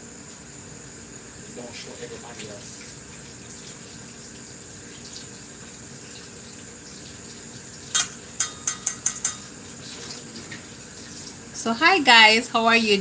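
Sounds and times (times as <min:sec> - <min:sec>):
kitchenware clinking: 0:07.9 - 0:09.6
tap running into sink: 0:07.9 - 0:10.7.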